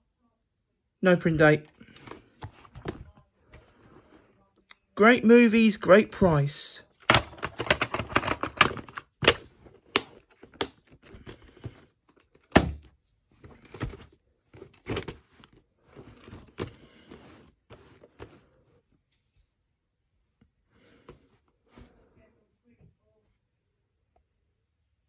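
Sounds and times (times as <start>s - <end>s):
hard plastic clicks and knocks: 7.0s - 10.7s.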